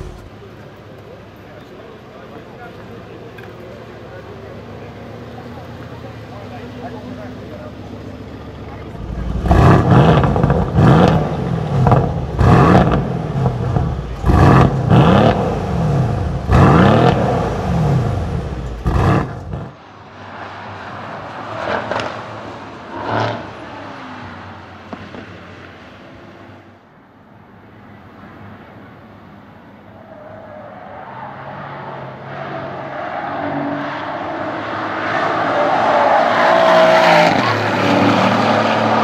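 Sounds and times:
car engine revving: 0:00.0 - 0:00.5, 0:07.9 - 0:19.7, 0:32.1 - 0:39.0
distant car driving on circuit: 0:00.0 - 0:26.7, 0:27.6 - 0:39.0.

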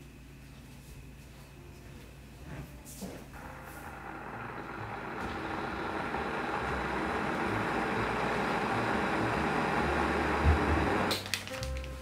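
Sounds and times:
electric kettle rumbling hiss: 0:03.0 - 0:11.2.

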